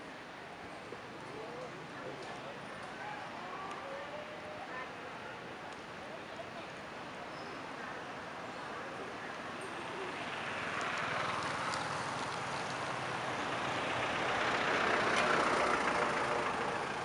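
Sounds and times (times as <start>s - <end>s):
vehicle passing by: 10.1s - 17.0s.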